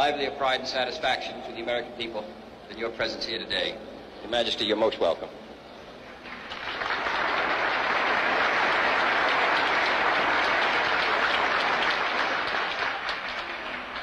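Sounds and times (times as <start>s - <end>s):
crowd applauding: 6.2s - 14.0s.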